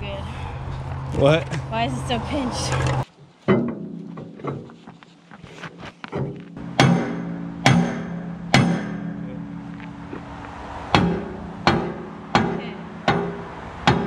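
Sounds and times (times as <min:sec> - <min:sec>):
hammer striking steel pin: 0:06.2 - 0:10.3, 0:10.9 - 0:14.0.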